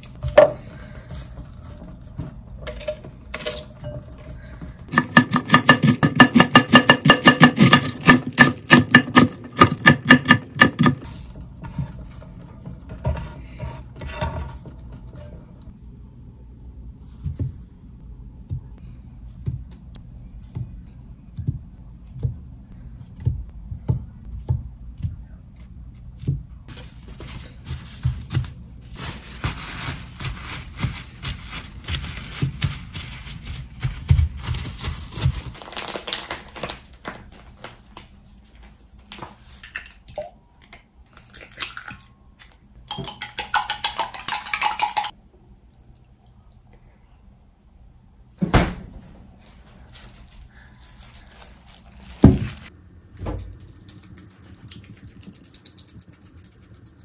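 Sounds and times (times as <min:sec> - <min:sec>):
paper towels rustling and crinkling: 0:26.7 - 0:39.6, 0:49.2 - 0:52.7.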